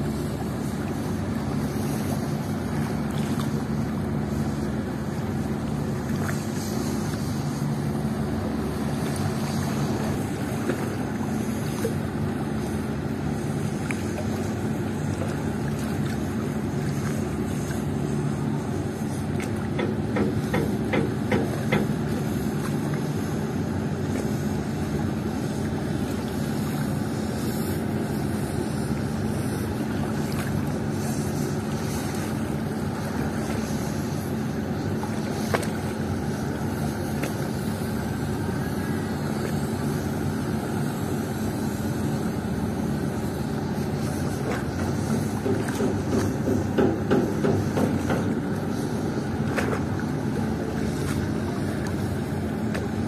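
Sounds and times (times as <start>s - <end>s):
boat engine droning: 0.0s - 53.0s
water washing: 0.0s - 53.0s
wind: 0.0s - 53.0s.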